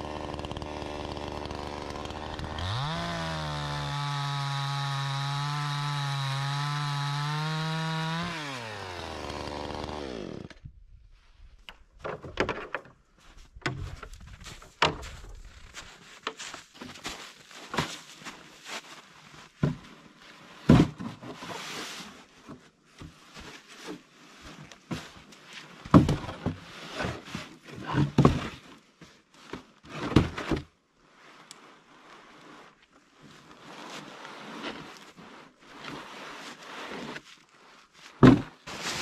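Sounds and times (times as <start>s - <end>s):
rustling and handling noise: 11.0s - 25.9s, 31.0s - 39.0s
firewood thunking into sled: 20.7s - 21.3s, 25.9s - 27.2s, 27.8s - 28.6s, 38.2s - 39.0s.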